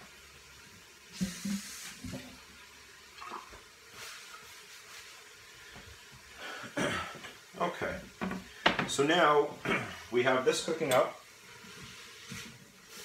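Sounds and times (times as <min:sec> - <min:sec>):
tap water splashing into sink: 0:03.1 - 0:03.7.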